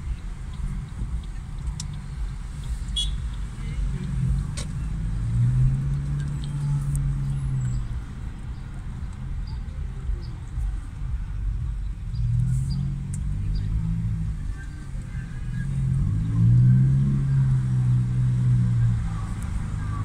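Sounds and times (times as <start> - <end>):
slow city traffic rumble: 0.0 - 20.0.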